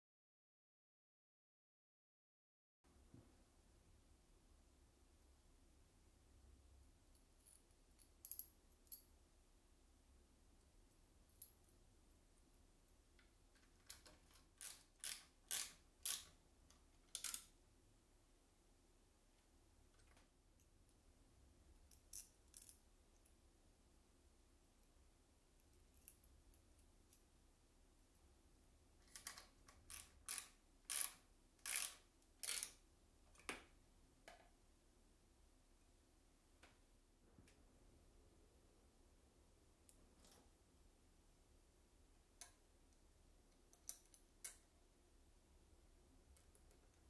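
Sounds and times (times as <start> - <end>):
screwdriver turning screw: 13.8 - 16.3, 29.2 - 32.8.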